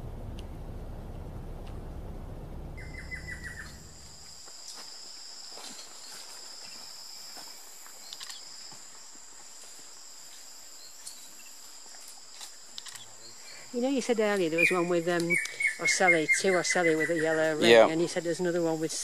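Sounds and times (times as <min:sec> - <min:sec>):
low rumble: 0:00.0 - 0:04.3
bird notes: 0:02.7 - 0:04.0.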